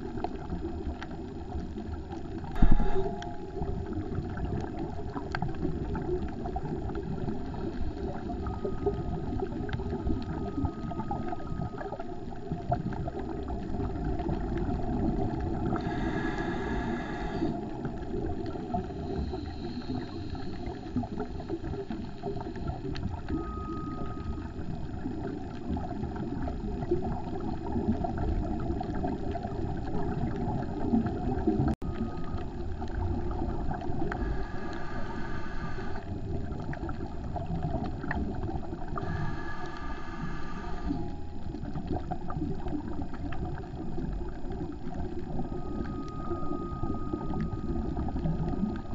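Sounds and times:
underwater rumble with crackling: 0:00.0 - 0:48.9
bright rush of sound: 0:02.6 - 0:03.7.

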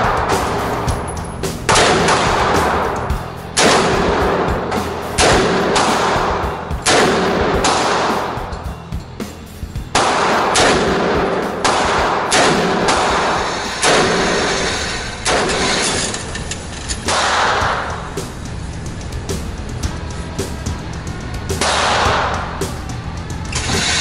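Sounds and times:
background music: 0:00.0 - 0:24.0
handgun shots echoing: 0:01.7 - 0:08.6, 0:10.0 - 0:17.9.

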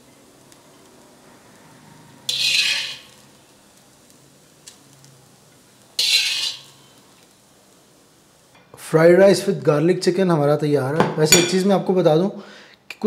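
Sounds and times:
metal spoon scraping metal wok: 0:02.0 - 0:03.4, 0:06.0 - 0:07.1.

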